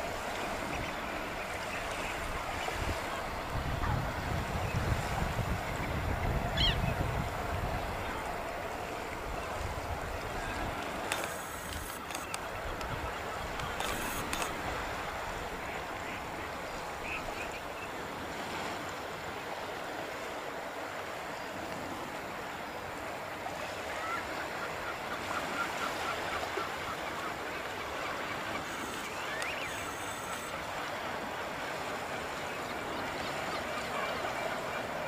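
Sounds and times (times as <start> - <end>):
water rushing on shore: 0.0 - 35.0
wind: 0.0 - 35.0
faint bird calls: 5.8 - 7.0, 10.3 - 18.0, 23.5 - 35.0.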